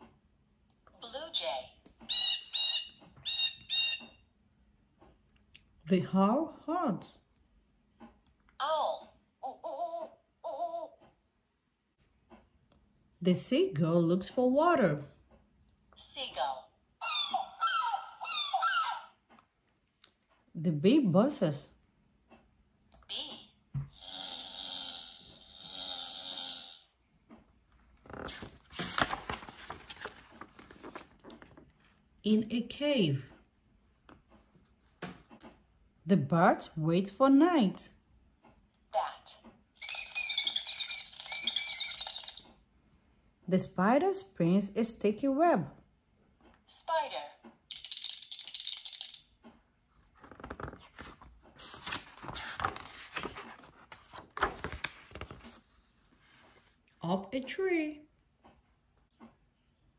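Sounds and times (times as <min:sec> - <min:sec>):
paper page turning: 0:28.0 - 0:31.7, 0:50.1 - 0:56.7.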